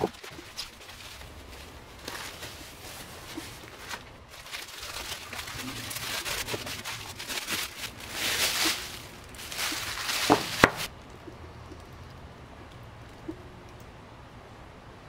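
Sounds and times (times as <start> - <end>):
packing wrap crinkling: 0.0 - 10.9
block knocking on wrap: 10.2 - 10.9.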